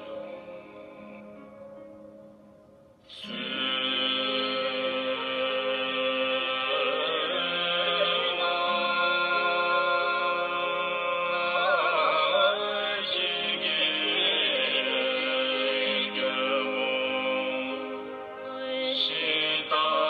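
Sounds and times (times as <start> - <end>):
slow melodic chanting: 0.0 - 20.0
steady sustained tones: 0.0 - 20.0.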